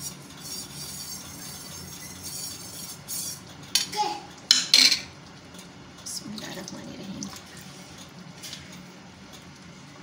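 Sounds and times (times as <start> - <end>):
kitchenware clinking against pan: 4.5 - 5.1.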